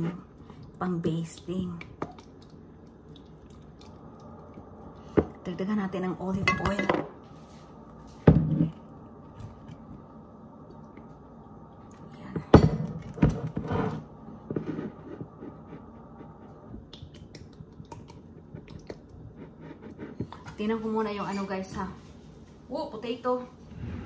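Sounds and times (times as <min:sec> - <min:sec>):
steady low hum: 0:00.0 - 0:24.0
kitchen items knocking on counter: 0:06.4 - 0:07.2.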